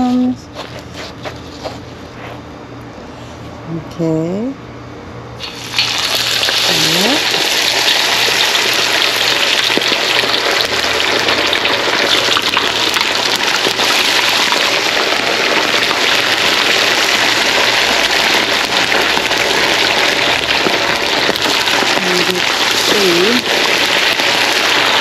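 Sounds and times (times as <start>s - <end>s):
fish frying in hot oil: 5.4s - 25.0s.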